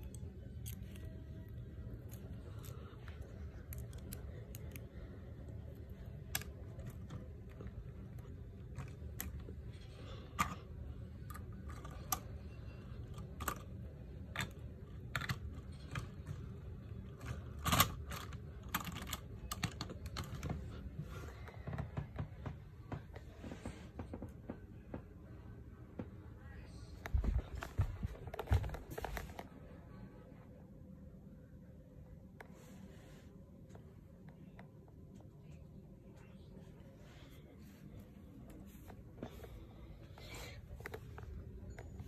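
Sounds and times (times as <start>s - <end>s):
low hum: 0.0s - 42.0s.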